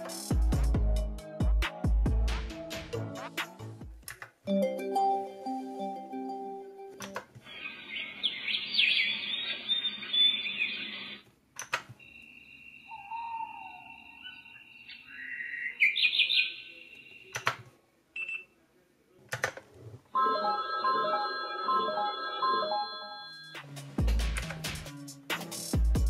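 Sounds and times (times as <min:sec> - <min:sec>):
electronic birdsong chirps: 0:05.4 - 0:11.2, 0:12.0 - 0:17.4.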